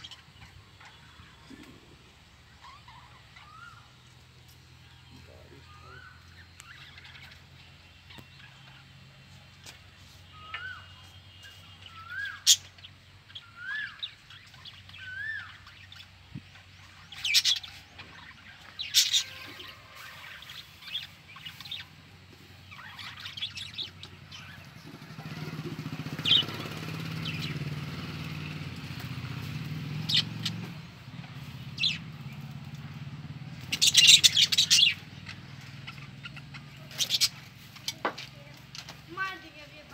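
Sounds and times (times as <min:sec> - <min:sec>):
low engine hum: 0:00.0 - 0:39.9
budgerigars chirping: 0:02.4 - 0:04.2, 0:04.8 - 0:08.9, 0:10.2 - 0:27.8, 0:29.4 - 0:30.8, 0:31.4 - 0:32.6, 0:33.4 - 0:38.2.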